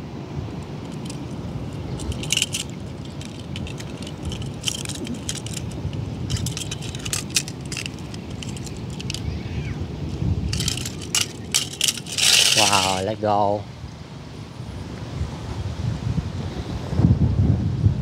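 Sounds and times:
wind rumble on microphone: 0.0s - 18.0s
toy cars clacking together: 1.9s - 9.3s, 10.5s - 13.0s.

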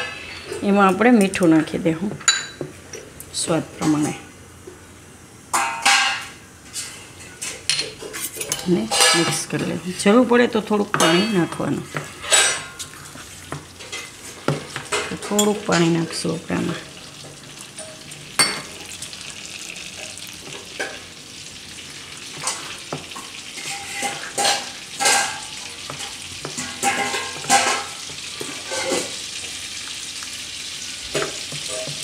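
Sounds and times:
butter and oil sizzling: 8.6s - 32.0s.

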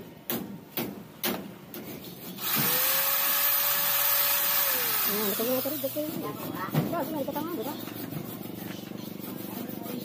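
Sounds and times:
electric drill boring plastic pipe: 2.4s - 5.9s.

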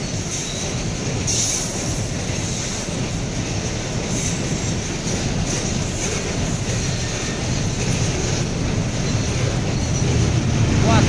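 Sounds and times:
train wheels rumbling on rails: 0.0s - 11.0s
wheel squeals: 4.0s - 10.4s.

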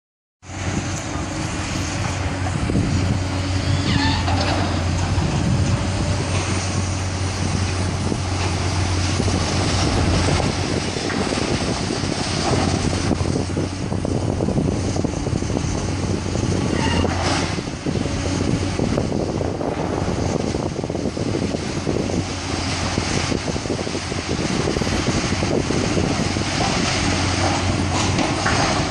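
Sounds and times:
excavator diesel engines droning: 0.4s - 28.9s
rubble and metal clattering: 26.0s - 28.9s.

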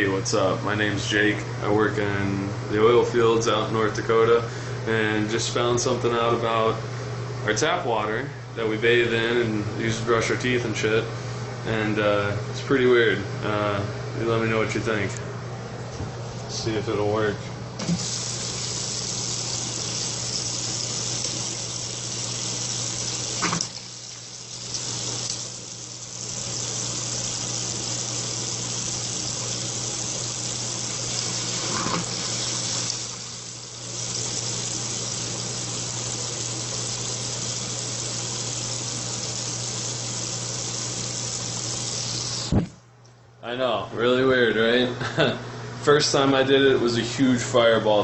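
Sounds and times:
faucet water splashing into sink: 17.8s - 42.6s.

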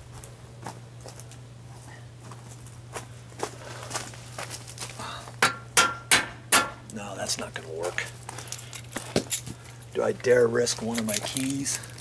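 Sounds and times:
faint scuffs and ticks: 0.0s - 5.0s, 7.9s - 12.0s.

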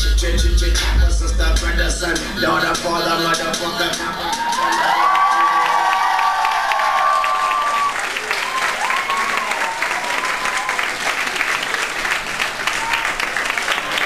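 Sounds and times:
dance music: 0.0s - 5.9s
audience applauding: 4.3s - 14.0s.

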